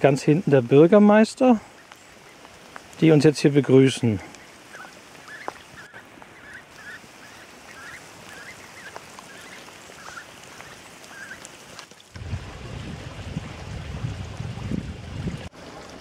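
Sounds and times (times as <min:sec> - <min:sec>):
rain hiss: 0:00.0 - 0:16.0
low rumbling of wind or water: 0:04.0 - 0:16.0
ducks giving soft calls: 0:04.2 - 0:12.1.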